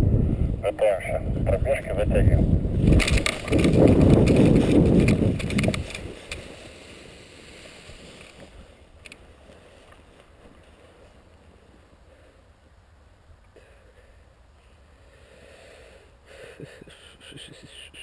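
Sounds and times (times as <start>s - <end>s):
air rushing over microphone: 0.0s - 8.7s
faint rustling: 2.8s - 12.8s
small clicks: 5.0s - 6.5s.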